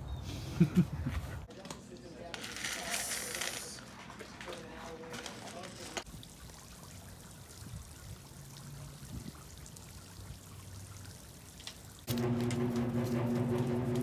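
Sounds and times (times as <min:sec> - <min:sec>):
pool water splashing: 0:02.8 - 0:14.0
loud steady multi-pitched hum: 0:12.1 - 0:14.0.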